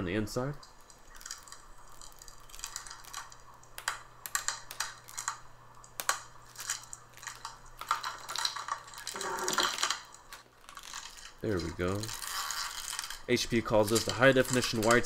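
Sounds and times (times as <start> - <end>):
plastic film crinkling: 0.6 - 15.0.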